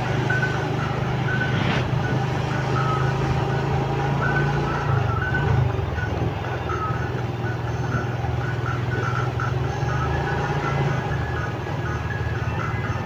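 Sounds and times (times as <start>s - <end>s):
short high beeps: 0.0s - 5.6s
motorcycle engine running: 0.0s - 13.0s
passing truck rush: 0.0s - 13.0s.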